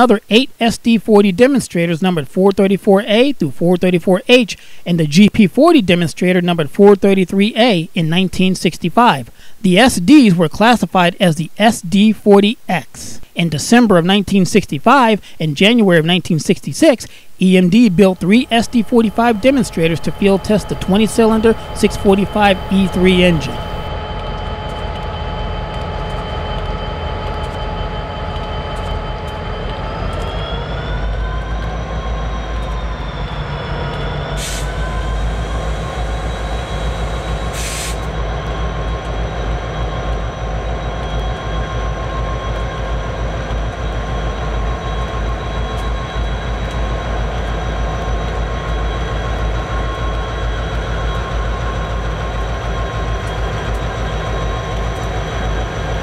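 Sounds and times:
locomotive engine rumble and whine: 16.8s - 56.0s
short bursts of hiss: 37.5s - 38.1s.

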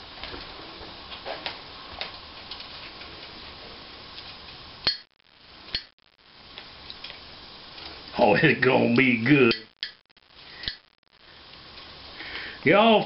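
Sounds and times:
steady low hiss: 0.0s - 13.0s
sharp clicks: 9.5s - 11.0s.

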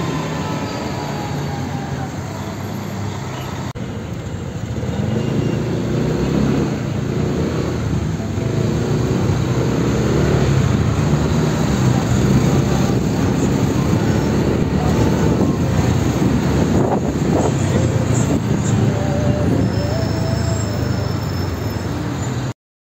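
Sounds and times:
bus diesel engine droning: 0.0s - 22.4s.

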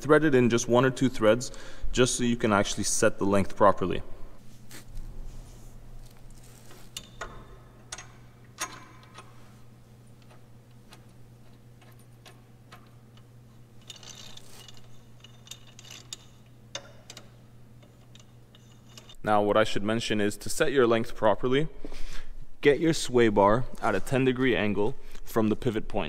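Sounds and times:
steady low hum: 0.0s - 26.0s
small metallic clicks and clinks: 10.2s - 19.2s.

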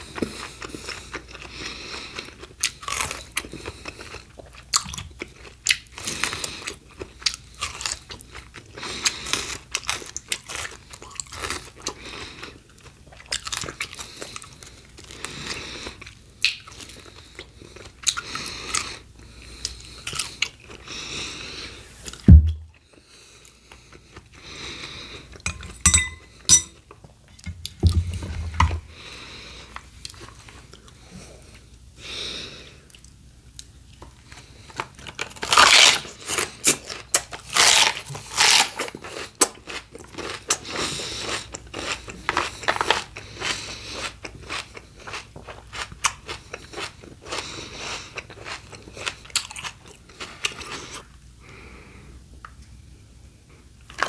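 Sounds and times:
person crunching raw vegetables: 0.0s - 31.2s, 32.9s - 51.1s.

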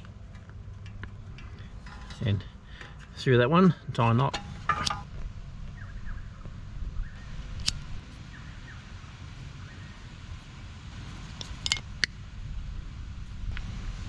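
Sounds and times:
low background rumble: 0.0s - 14.0s
light tool clicks: 7.6s - 8.0s.

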